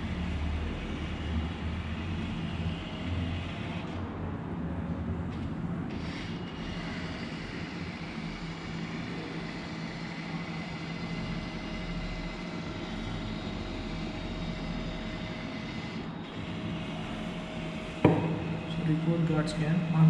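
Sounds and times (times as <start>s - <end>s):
scanner mechanical hum: 0.0s - 20.0s.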